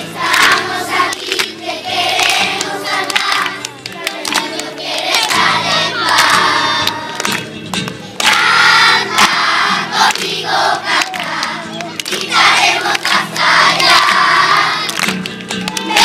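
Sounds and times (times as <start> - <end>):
children singing in chorus: 0.0 - 7.3, 8.2 - 15.0.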